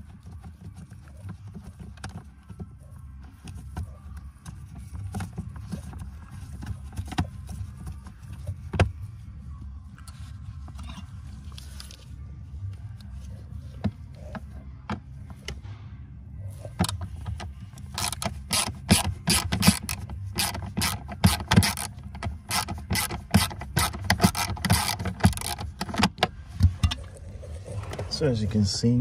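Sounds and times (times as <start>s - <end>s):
hand ratchet clicking: 16.8s - 26.2s.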